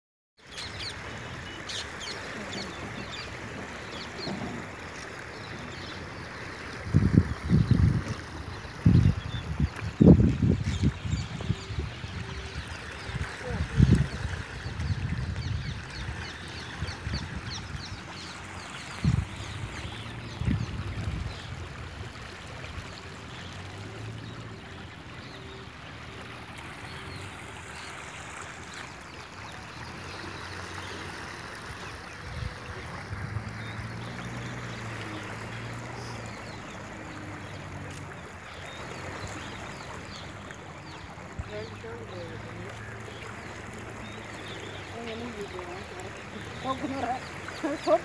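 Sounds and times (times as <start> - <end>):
river water lapping over bank: 0.4 - 48.0.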